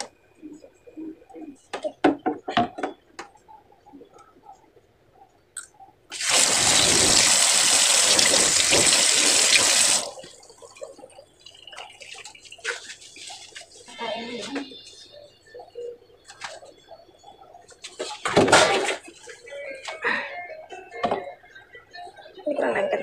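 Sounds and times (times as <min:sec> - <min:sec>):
water running from kitchen tap: 0:06.1 - 0:13.8.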